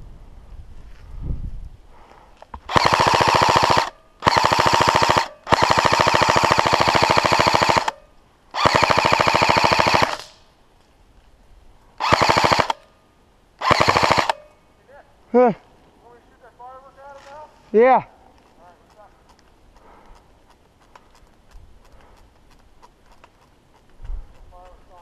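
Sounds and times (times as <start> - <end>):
airsoft rifle full-auto bursts: 2.6 - 8.0, 8.6 - 10.4, 12.0 - 12.8, 13.6 - 14.4.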